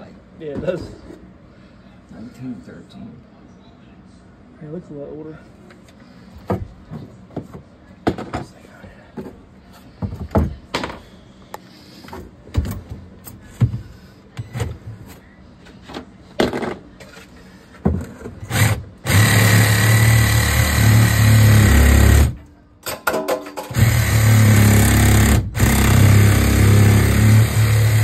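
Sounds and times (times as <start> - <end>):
knocks and clanks: 15.9 - 17.2, 17.8 - 25.9
power tool running: 18.5 - 22.4, 23.7 - 28.0.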